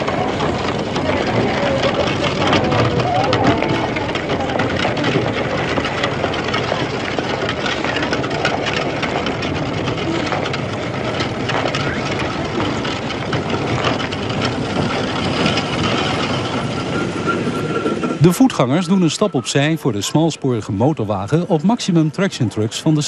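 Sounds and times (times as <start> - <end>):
tram running on rails: 0.0 - 23.0
thin wheel squeal: 15.4 - 20.1.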